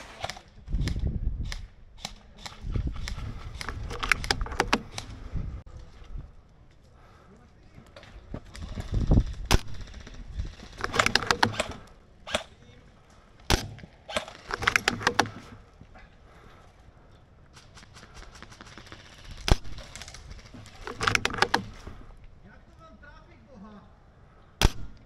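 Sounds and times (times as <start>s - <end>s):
airsoft gun bursts: 9.5s - 12.6s, 13.5s - 15.6s
airsoft gun single cracks: 13.4s - 15.3s, 24.6s - 25.0s.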